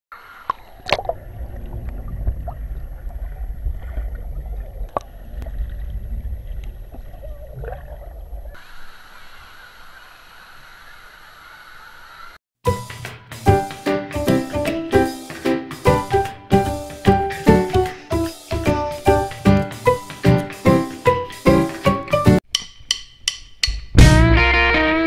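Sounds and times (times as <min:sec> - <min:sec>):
water sloshing and gurgling: 0:00.2 - 0:08.6
waterpark background hiss: 0:08.6 - 0:12.4.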